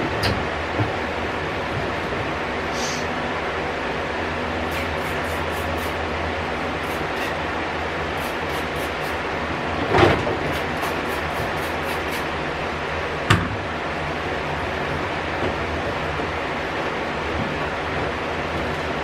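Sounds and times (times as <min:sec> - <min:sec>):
steady hiss: 0:06.8 - 0:07.4.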